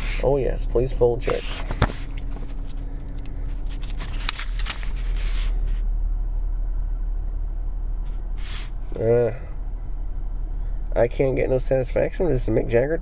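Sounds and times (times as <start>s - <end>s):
low rumble inside a car: 0.0s - 13.0s
paper pages rustling and turning: 1.2s - 5.8s.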